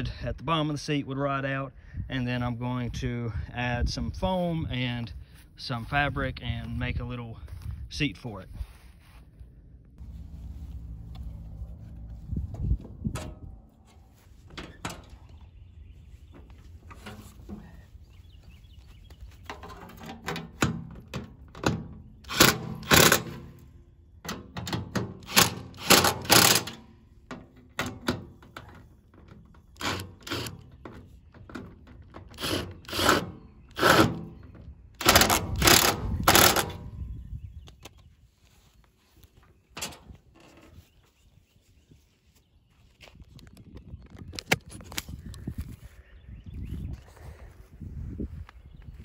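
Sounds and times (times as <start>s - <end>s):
impact driver hammering: 20.2s - 23.6s, 24.3s - 26.9s, 29.8s - 30.7s, 32.2s - 34.4s, 35.0s - 36.9s.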